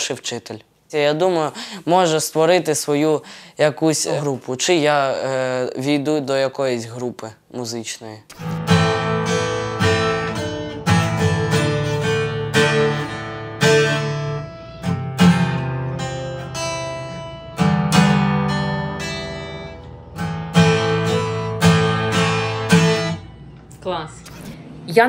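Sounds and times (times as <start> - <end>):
acoustic guitar chords strummed: 8.3 - 24.8.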